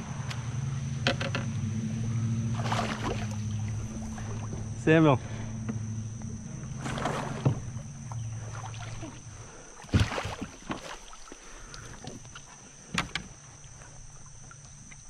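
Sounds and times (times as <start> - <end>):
low steady hum: 0.0 - 15.0
paddle splashing water: 2.4 - 15.0
paddle knocking plastic hull: 5.6 - 9.2.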